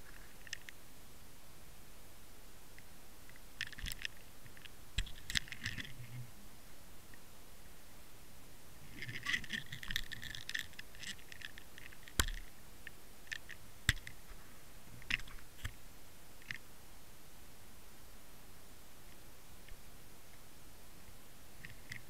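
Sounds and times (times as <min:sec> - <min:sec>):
scratchy crackles and clicks: 0:00.0 - 0:00.8, 0:02.8 - 0:06.3, 0:08.8 - 0:15.8, 0:16.4 - 0:16.7, 0:21.6 - 0:22.0
low steady hiss: 0:00.0 - 0:22.0
underwater camera scraping: 0:05.0 - 0:06.2, 0:08.9 - 0:12.5.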